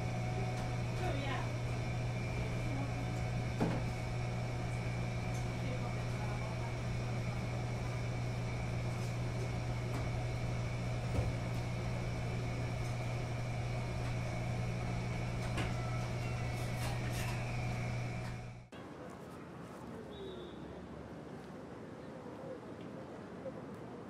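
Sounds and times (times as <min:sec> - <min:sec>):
washing machines humming: 0:00.0 - 0:18.7.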